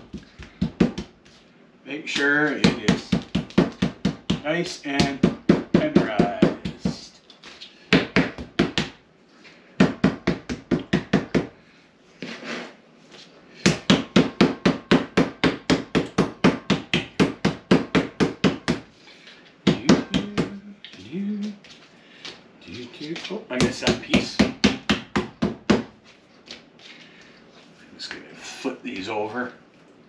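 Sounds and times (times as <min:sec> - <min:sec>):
meat mallet pounding steak: 0:00.0 - 0:01.2, 0:02.6 - 0:07.0, 0:13.7 - 0:18.9.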